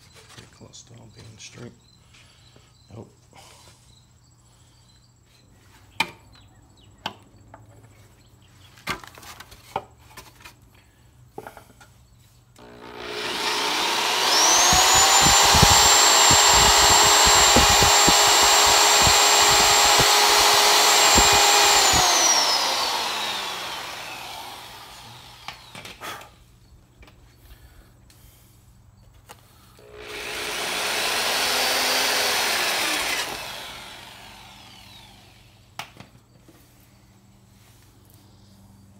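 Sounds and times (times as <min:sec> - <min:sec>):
electric power tool whining: 0:12.6 - 0:26.0, 0:29.8 - 0:35.7
knocks of tool cutting: 0:13.7 - 0:22.5
scattered clicks and knocks: 0:14.4 - 0:22.0.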